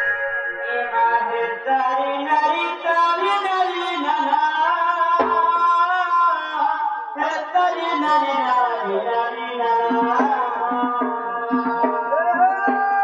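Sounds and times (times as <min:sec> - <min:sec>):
musical accompaniment: 0:00.0 - 0:02.9
person singing folk melody: 0:00.0 - 0:13.0.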